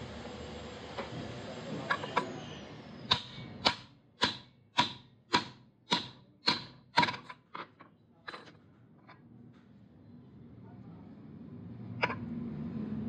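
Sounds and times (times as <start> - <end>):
sharp metallic knocks: 3.1 - 7.4.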